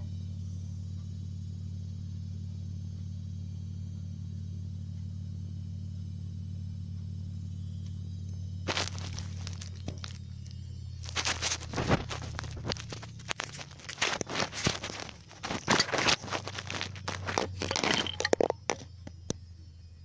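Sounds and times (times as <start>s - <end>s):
steady low hum: 0.0s - 20.0s
rustling of wood-shaving bedding: 8.6s - 18.9s.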